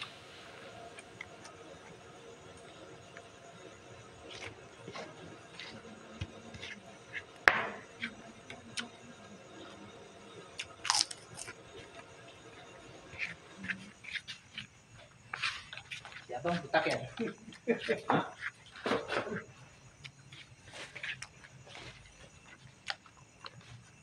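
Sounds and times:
cracker crunching: 10.6s - 11.6s
chewing: 10.6s - 12.0s, 13.1s - 19.4s, 20.0s - 23.9s.

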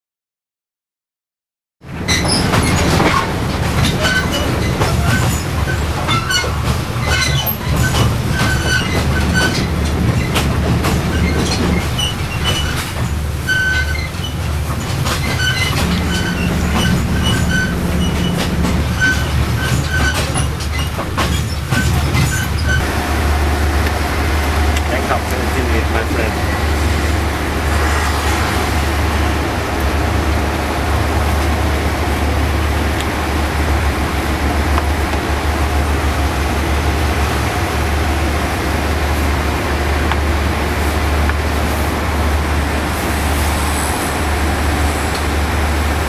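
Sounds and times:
train rumbling on rails: 1.8s - 46.0s
brief high squeaks: 2.1s - 10.4s, 11.0s - 22.8s.

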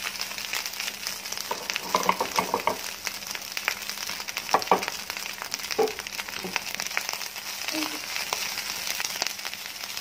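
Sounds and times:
rice sizzling in a pan: 0.0s - 10.0s
wooden spatula scraping a pan: 1.5s - 2.8s.

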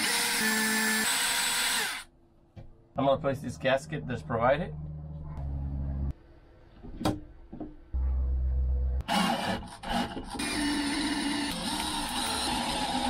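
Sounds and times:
cordless drill motor running: 0.0s - 2.1s, 10.3s - 13.0s.

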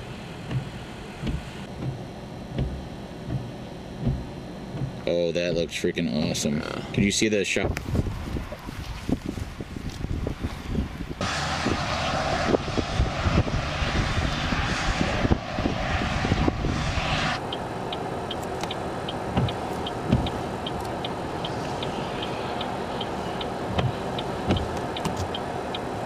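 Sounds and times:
low thumps: 0.4s - 5.1s
loud rushing noise: 11.2s - 18.3s
vehicle engine idling: 17.4s - 26.0s.

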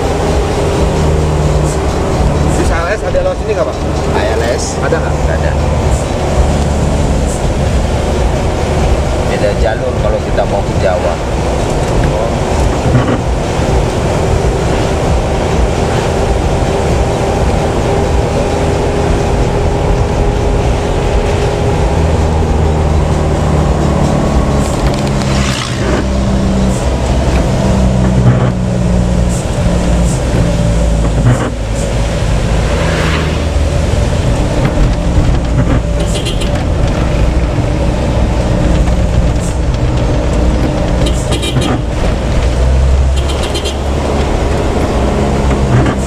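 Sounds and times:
bus engine and tyre noise: 0.0s - 46.0s
knocks and rattles: 34.1s - 46.0s.

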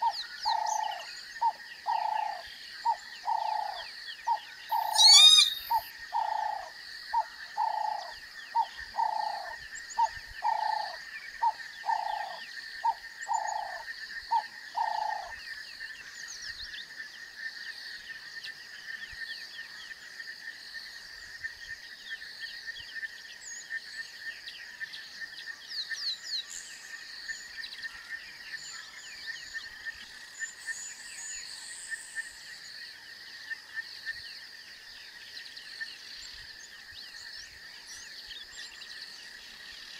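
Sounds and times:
bird chirps: 0.0s - 6.5s
insect drone: 0.0s - 39.9s
animal calling: 4.7s - 5.9s.

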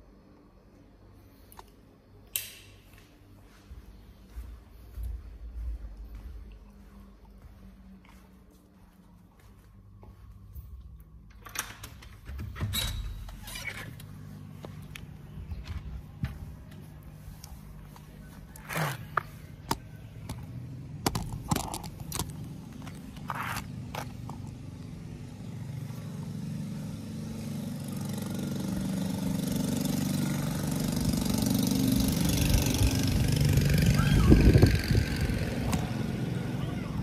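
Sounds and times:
motor vehicle engine: 13.1s - 37.0s
sharp clicks and knocks: 19.6s - 23.0s.

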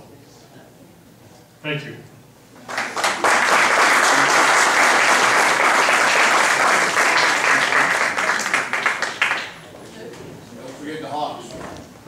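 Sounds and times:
audience applauding: 2.6s - 9.7s.

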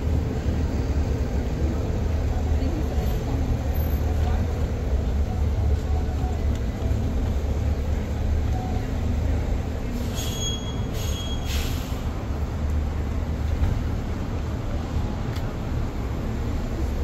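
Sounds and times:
street traffic rumbling: 0.0s - 17.0s
brief high-pitched squeal: 10.0s - 12.0s.

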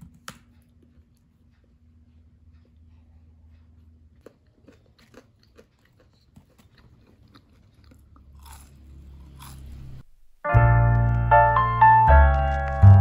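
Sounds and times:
loud piano music: 10.4s - 13.0s.

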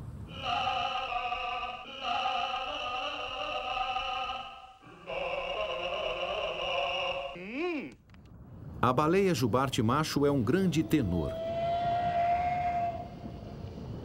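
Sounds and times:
operatic voice singing: 0.3s - 8.0s.

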